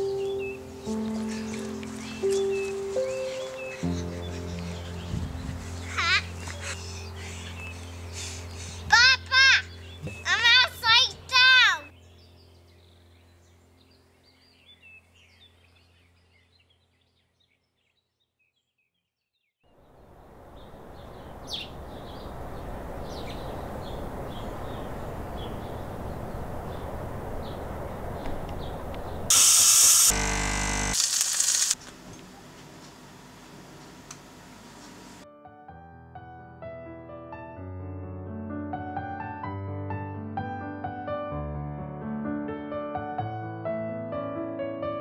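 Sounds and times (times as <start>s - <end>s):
faint birdsong: 0.0s - 29.3s
steady hiss-like noise: 19.8s - 28.2s
loud burst of noise: 29.3s - 31.8s.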